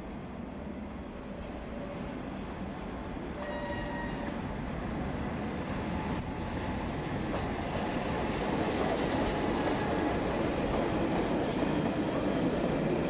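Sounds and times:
train wheels rumbling and clicking: 5.5 - 13.0.

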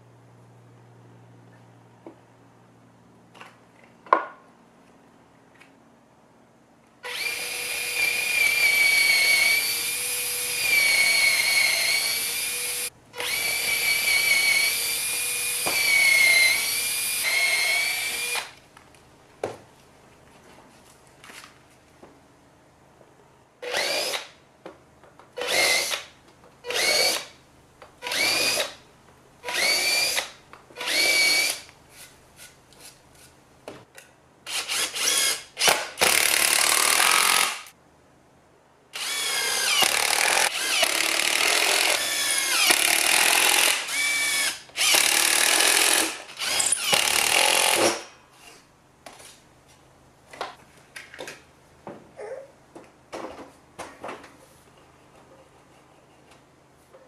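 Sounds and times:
cordless drill boring wood: 7.0 - 18.5, 23.6 - 24.3, 25.4 - 26.1, 26.7 - 27.3, 28.0 - 28.8, 29.4 - 31.7, 34.5 - 37.7, 39.0 - 48.1
drill trigger bursts: 7.0 - 18.5, 29.4 - 31.6, 34.5 - 37.7, 39.0 - 48.1.

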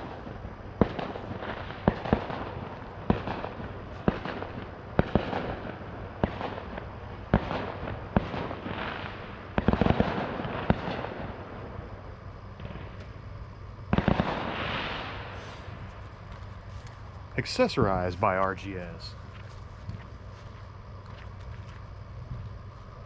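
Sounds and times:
firework bangs: 0.0 - 16.0
crackling firework hiss: 0.0 - 23.0.

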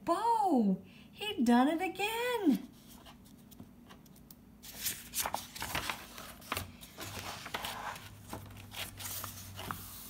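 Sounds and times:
paper pages rustling: 2.8 - 10.0.

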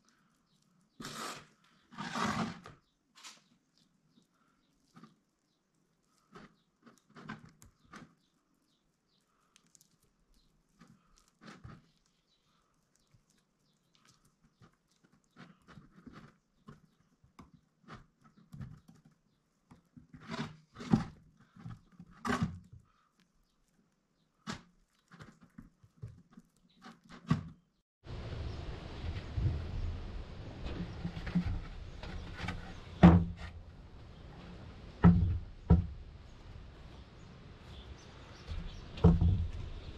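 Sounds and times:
wet fingers squelching paste: 3.6 - 20.0, 22.7 - 27.2.

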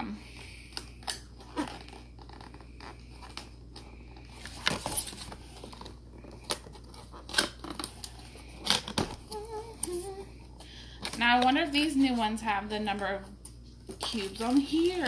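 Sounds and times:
packaging crinkling: 0.7 - 12.3.

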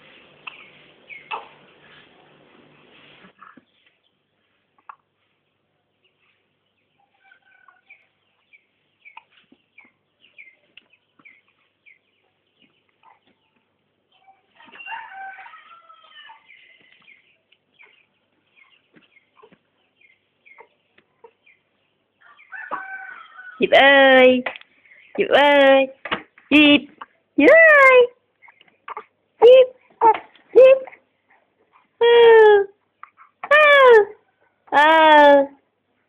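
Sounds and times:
chicken chirps: 7.0 - 23.6.

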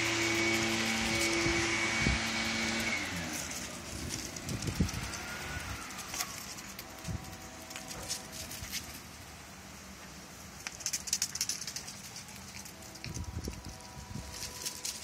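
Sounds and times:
motor humming: 0.0 - 8.6.

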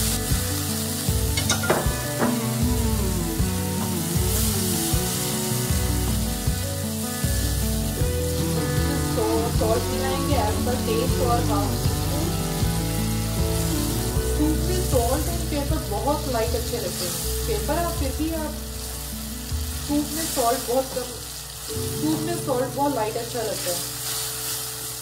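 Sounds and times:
instrumental background music: 0.0 - 25.0
mushrooms sizzling in oil: 0.0 - 25.0
spatula stirring in pan: 23.5 - 25.0.

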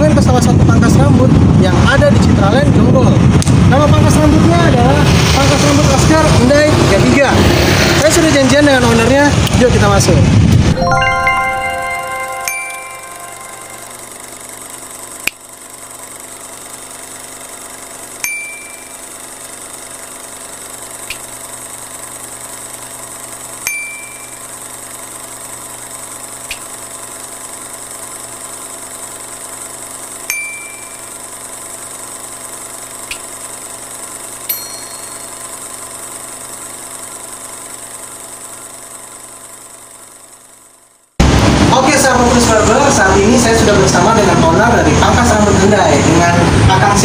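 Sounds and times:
ding-like pop effects: 10.8 - 13.0, 30.3 - 31.0.

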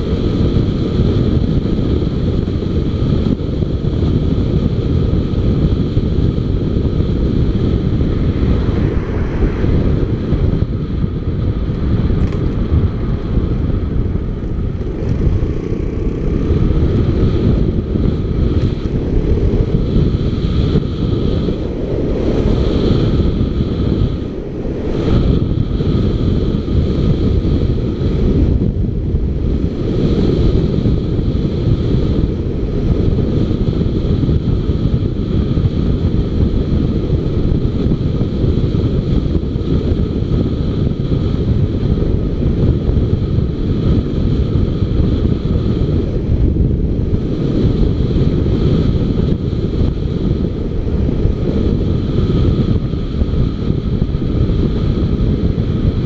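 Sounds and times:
motorcycle running: 0.0 - 56.0
road noise: 0.0 - 56.0
wind rumbling on microphone: 0.0 - 56.0.

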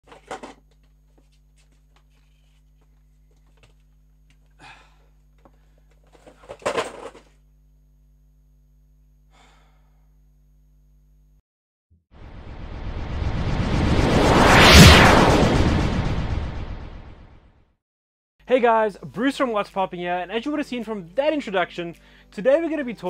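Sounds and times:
plastic boxes rustling and clattering: 0.0 - 4.0, 5.4 - 7.4
low electrical hum: 0.1 - 11.4.

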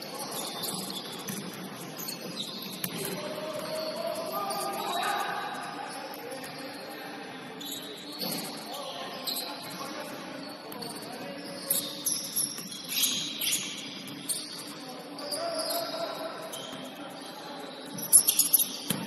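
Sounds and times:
shoes squeaking on hardwood floor: 0.0 - 5.1, 9.1 - 17.3
murmur of voices: 0.0 - 19.0.

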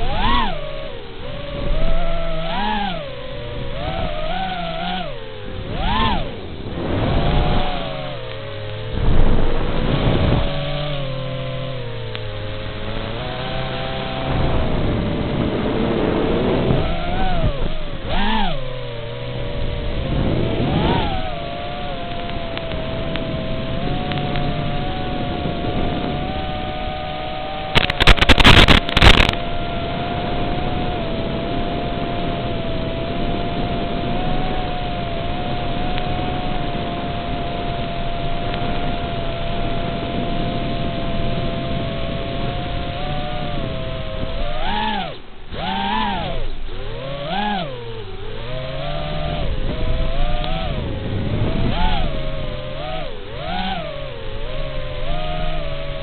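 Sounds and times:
quadcopter motors whining: 0.0 - 56.0
loud crackling burst: 27.7 - 29.5.

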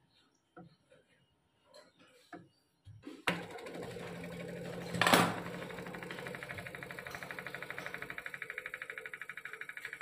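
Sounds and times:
pump humming and pulsing: 3.3 - 10.0.

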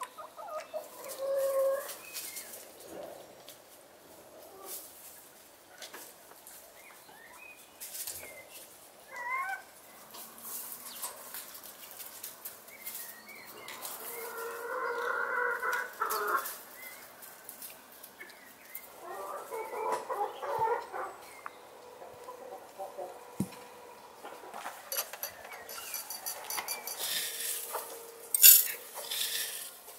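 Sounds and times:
hen clucking: 0.0 - 2.0, 13.7 - 16.6, 18.9 - 29.9
cutlery clicking on plates: 24.9 - 27.3.

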